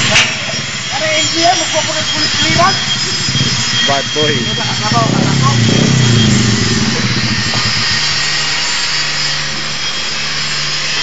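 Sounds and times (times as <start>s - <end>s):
motorcycle engine idling: 0.4s - 9.0s.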